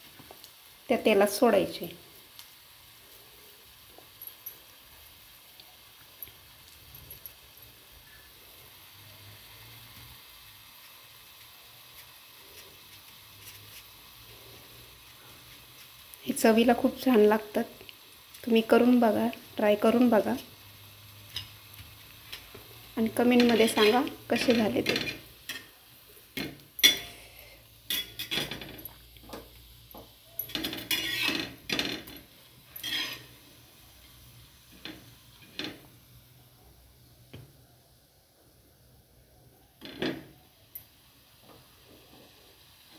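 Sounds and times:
oil sizzling in a pan: 0.0s - 42.9s
small crackles of frying: 0.0s - 42.9s
spatula scraping frying pan: 22.3s - 25.8s, 26.8s - 28.8s, 30.4s - 35.8s.

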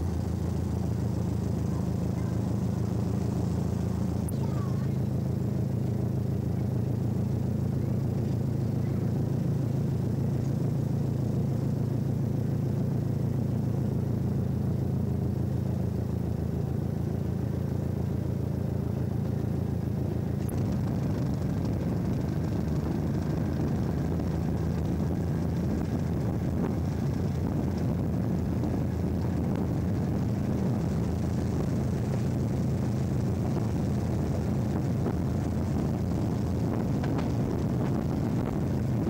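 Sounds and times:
train diesel engine drone: 0.0s - 39.0s.

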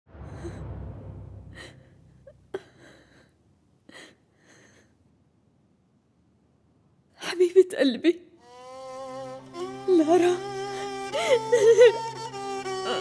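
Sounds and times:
low rumble: 0.1s - 2.5s.

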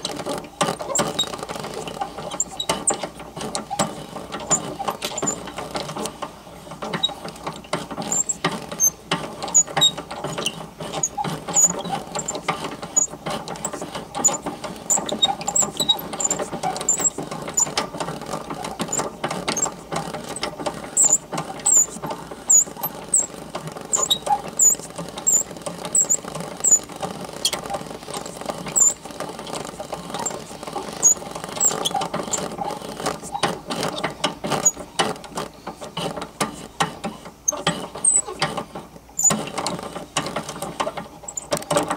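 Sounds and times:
whir of crank gearing: 0.0s - 41.9s
short high squeaks: 0.8s - 3.0s, 8.0s - 17.8s, 18.9s - 29.1s, 30.1s - 32.6s, 34.6s - 34.8s, 37.4s - 38.4s.

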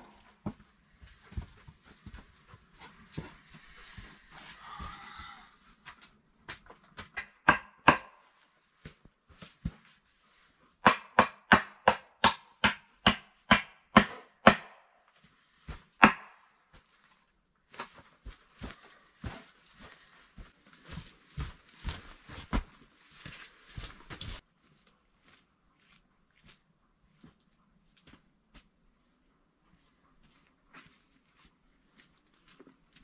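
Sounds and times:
soft knocks and scuffs: 0.2s - 5.1s, 8.7s - 10.6s, 16.7s - 24.4s
hammer striking wood: 7.2s - 8.2s, 10.8s - 14.9s, 16.0s - 16.4s.

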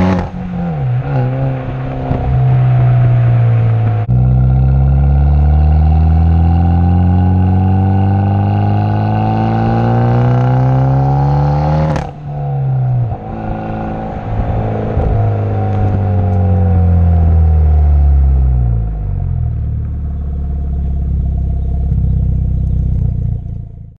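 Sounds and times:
car engine revving: 0.0s - 24.0s.

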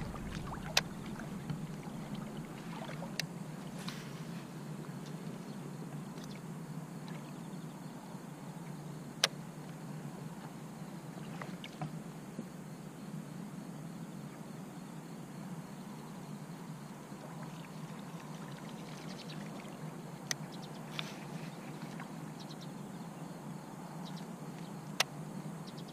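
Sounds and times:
water lapping and rippling: 0.0s - 7.6s, 9.6s - 12.0s, 16.8s - 22.5s
faint ticks: 2.9s - 4.1s, 20.2s - 22.1s.

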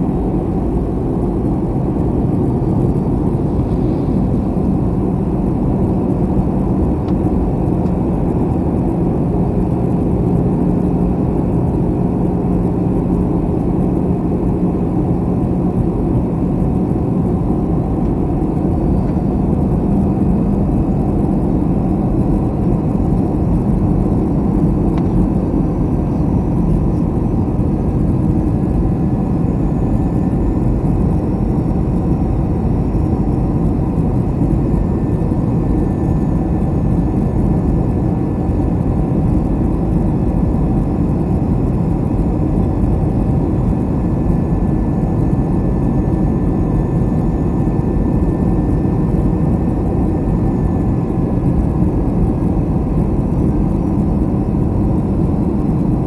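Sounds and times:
faint constant hum: 0.0s - 56.0s
jet engine roar in cabin: 0.0s - 56.0s.

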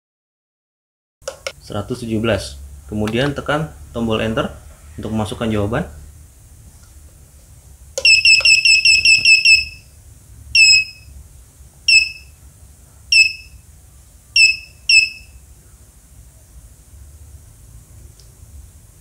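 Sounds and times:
short high electronic beeps: 8.0s - 9.9s, 10.6s - 11.1s, 11.9s - 12.4s, 13.1s - 13.6s, 14.4s - 15.4s.

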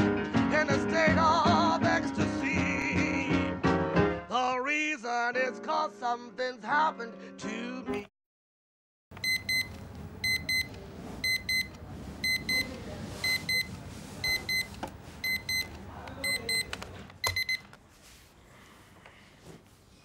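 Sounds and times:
alarm clock click: 9.2s - 12.6s
alarm clock beeping: 9.2s - 17.6s.

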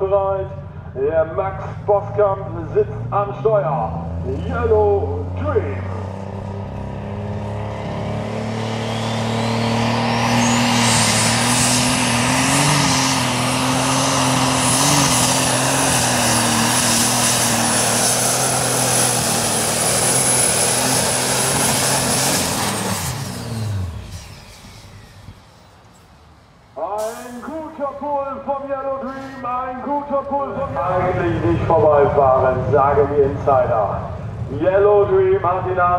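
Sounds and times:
deep engine roar at full power: 0.0s - 26.0s, 26.8s - 35.9s
turbo whistle whining: 8.8s - 11.5s.

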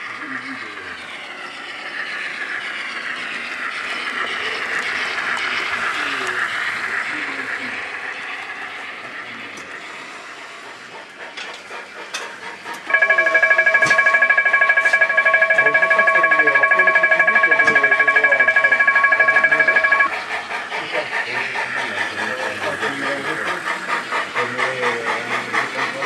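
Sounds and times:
model steam locomotive chuffing: 0.0s - 26.0s
level crossing warning ringer: 12.9s - 20.1s.

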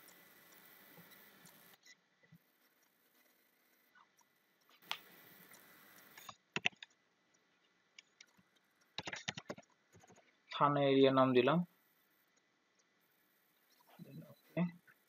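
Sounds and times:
soft hiss: 0.0s - 6.5s, 9.8s - 15.0s
keyboard keystrokes: 6.2s - 6.9s, 9.0s - 10.2s.

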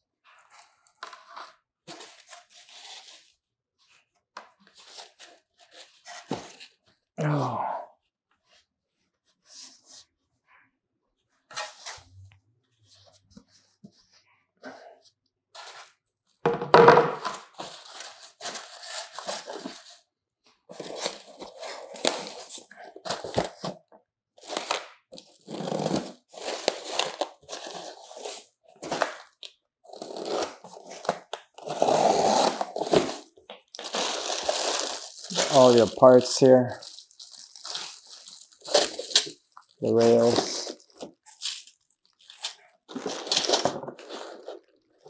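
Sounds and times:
cardboard and plastic tearing: 17.2s - 20.0s, 20.7s - 23.8s, 24.4s - 45.0s.

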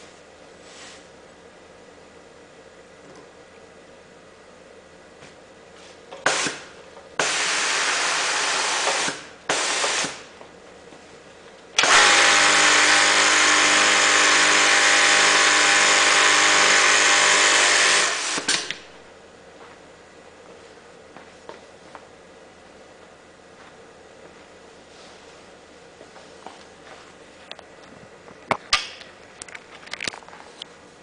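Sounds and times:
sewing machine running: 11.8s - 18.8s.

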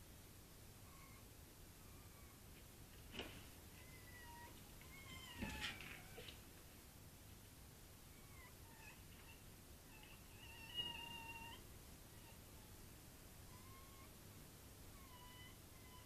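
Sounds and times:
soft thuds: 2.9s - 3.6s
cat meowing: 3.8s - 6.4s.

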